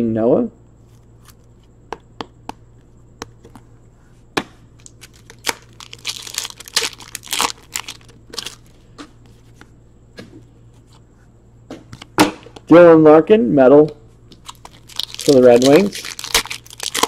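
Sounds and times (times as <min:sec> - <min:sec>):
foil wrapper crinkling: 0:04.8 - 0:08.8, 0:14.3 - 0:17.0.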